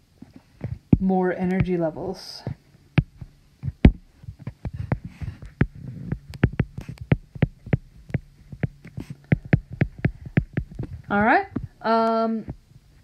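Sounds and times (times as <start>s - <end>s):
faint steady hum: 0.0s - 13.0s
stylus tapping on glass screen: 3.0s - 11.7s.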